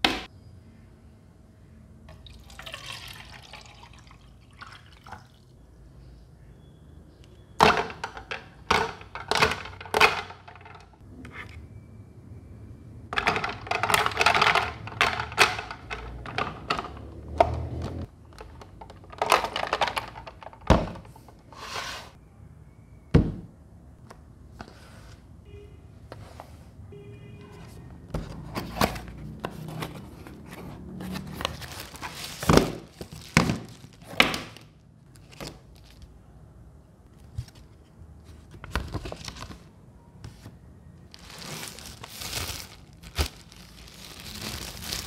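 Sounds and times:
water pouring into plastic tank: 2.2s - 5.4s
ice cubes clinking against plastic: 13.2s - 17.6s.

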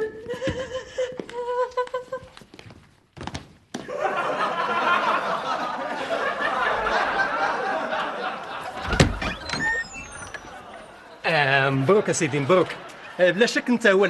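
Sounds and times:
sitcom audience laugh track: 3.9s - 8.9s, 10.4s - 14.0s.

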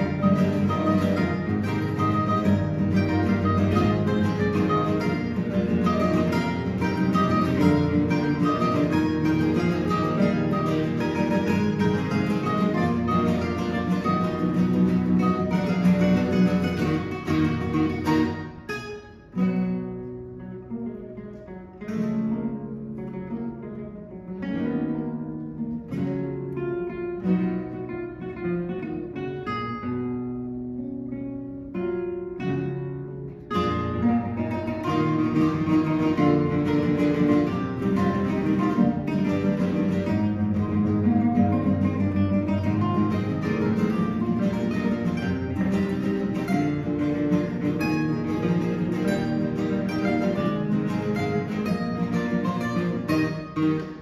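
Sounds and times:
classical guitar ensemble: 0.0s - 54.0s.

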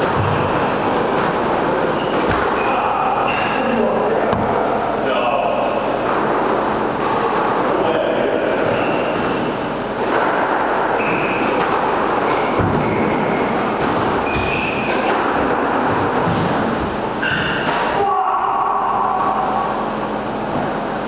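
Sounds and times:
court shoes squeaking on wooden floor: 0.0s - 4.7s, 8.6s - 9.6s, 10.9s - 11.6s, 12.2s - 16.6s, 17.2s - 17.7s
squash ball striking rackets and walls: 0.0s - 5.0s, 5.6s - 20.9s.

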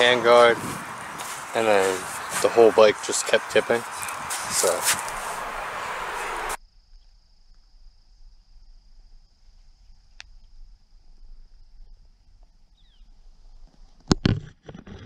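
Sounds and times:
loud rushing noise: 0.0s - 6.6s
insects chirring: 0.0s - 13.7s.

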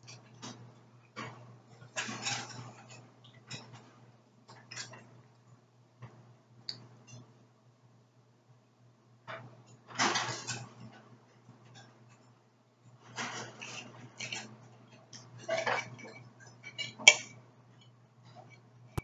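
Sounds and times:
knife scraping ceramic plate: 13.2s - 17.4s.

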